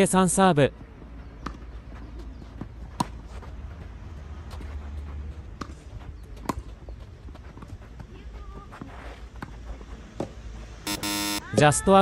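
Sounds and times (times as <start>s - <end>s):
tennis balls struck by rackets: 1.4s - 3.4s, 5.5s - 6.7s.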